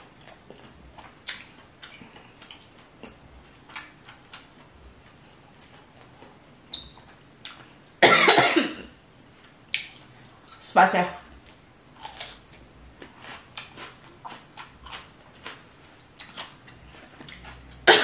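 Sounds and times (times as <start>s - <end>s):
mouth clicks and smacks eating: 0.2s - 6.2s, 9.7s - 10.6s
person coughing: 8.0s - 8.9s.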